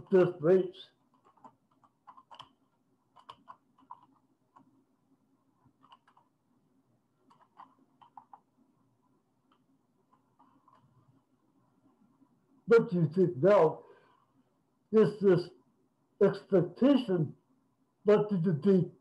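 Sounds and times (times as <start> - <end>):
keyboard typing: 1.1 - 4.8, 5.6 - 6.4, 7.2 - 8.5, 9.4 - 11.0.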